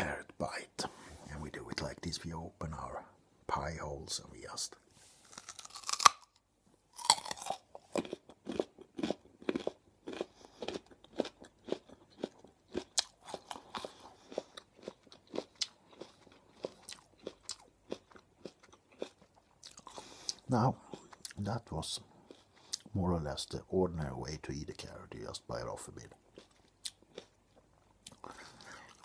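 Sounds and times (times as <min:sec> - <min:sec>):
crunchy chewing: 0:05.2 - 0:22.9, 0:26.1 - 0:29.0.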